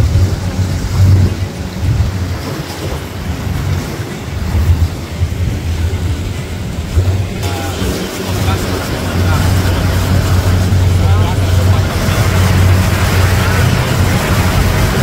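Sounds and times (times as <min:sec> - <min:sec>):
boat engine rumble: 0:00.0 - 0:15.0
wind buffeting microphone: 0:00.0 - 0:15.0.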